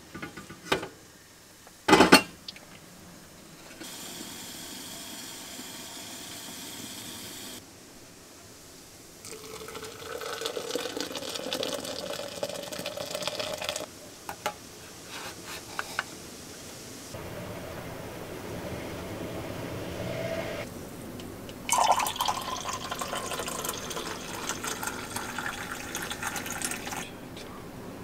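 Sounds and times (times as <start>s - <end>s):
water hissing in kettle: 3.7s - 7.6s, 8.6s - 17.2s, 21.5s - 27.1s
water pouring into jug: 9.2s - 13.9s, 21.6s - 27.1s.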